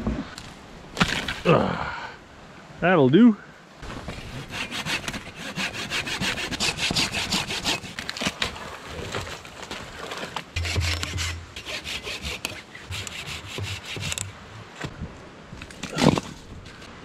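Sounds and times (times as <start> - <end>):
hand saw cutting wood: 4.2 - 8.4, 10.6 - 14.4.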